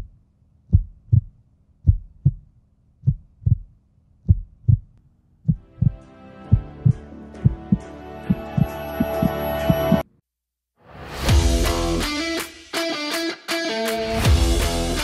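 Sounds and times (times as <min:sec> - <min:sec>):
heartbeat thumps: 0:00.7 - 0:10.0
music: 0:05.6 - 0:10.0, 0:10.8 - 0:15.0.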